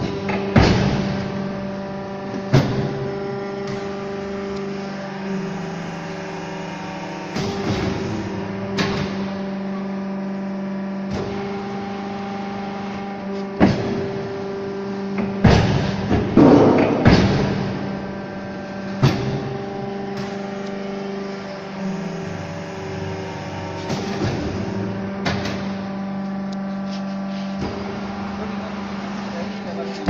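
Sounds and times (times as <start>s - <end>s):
machine press clunks: 0.0s - 1.6s, 2.3s - 4.0s, 7.3s - 9.4s, 15.1s - 18.2s, 18.8s - 20.4s, 23.8s - 25.9s
motor hum: 0.0s - 30.0s.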